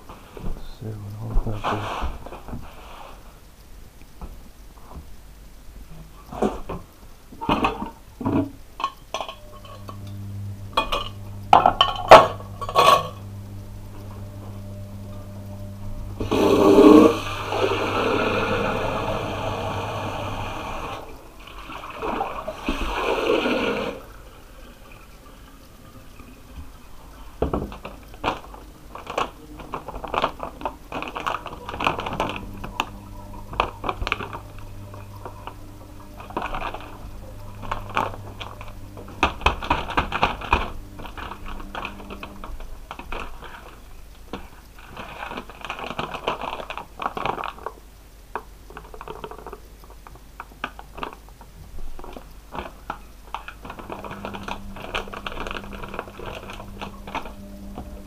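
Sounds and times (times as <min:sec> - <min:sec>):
paper bag crinkling: 0:27.0 - 0:47.8, 0:48.7 - 0:58.0.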